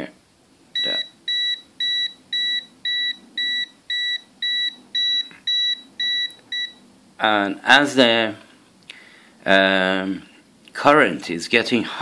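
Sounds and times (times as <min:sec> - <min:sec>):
short high beeps: 0:00.8 - 0:06.8.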